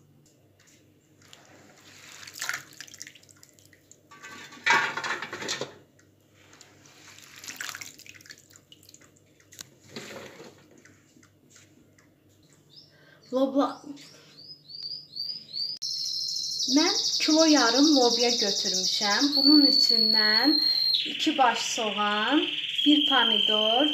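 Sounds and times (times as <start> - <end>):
hands sloshing beans in water: 1.2 - 3.8, 6.7 - 9.1.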